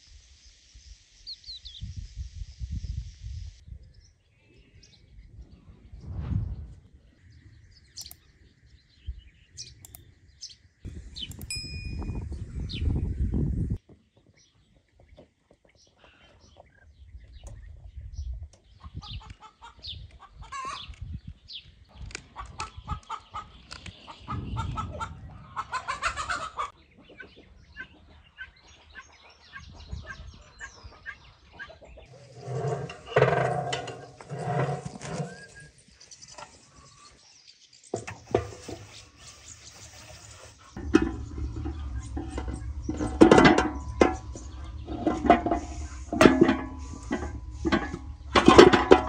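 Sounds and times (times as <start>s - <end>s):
chickens clucking: 18.8s - 21.0s, 22.1s - 35.5s, 38.3s - 49.0s.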